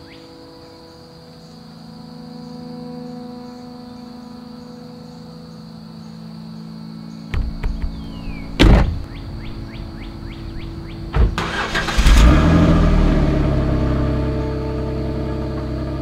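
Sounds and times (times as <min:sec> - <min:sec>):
thump: 0:07.3 - 0:09.1
car engine cranking and starting: 0:10.6 - 0:16.0
engine revving toward idle: 0:11.2 - 0:16.0.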